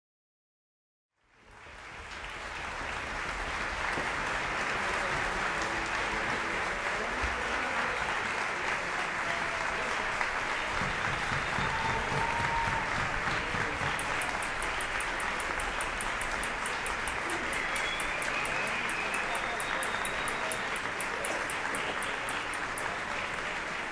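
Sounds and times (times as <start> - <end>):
audience applauding: 1.4 - 23.9
high regular ticking: 13.8 - 23.0.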